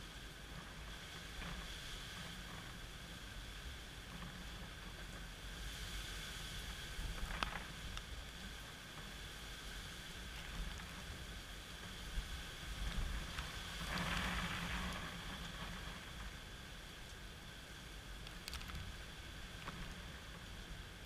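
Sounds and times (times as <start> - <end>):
gusty wind buffeting microphone: 0.0 - 21.0
rain falling: 10.1 - 17.4.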